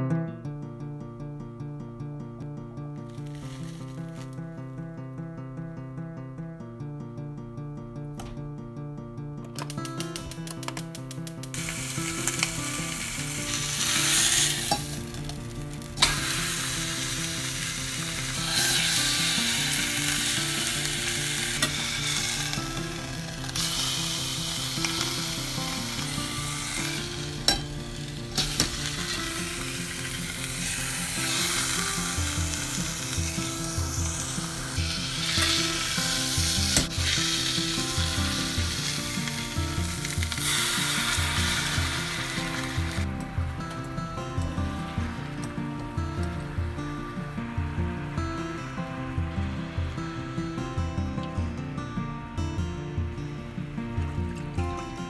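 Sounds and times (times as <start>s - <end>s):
pork sizzling in a pot: 3.0s - 4.7s, 9.6s - 50.6s
sharp clicks: 9.4s - 11.6s.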